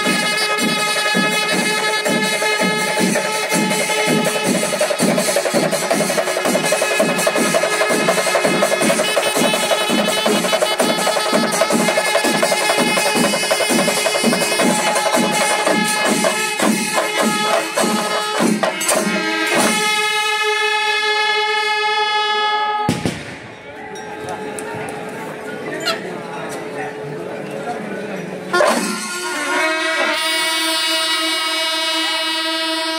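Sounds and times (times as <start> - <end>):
drums beaten in steady rhythm: 0.0 - 20.3, 28.6 - 30.2
horns holding long notes: 0.0 - 23.0, 28.5 - 32.9.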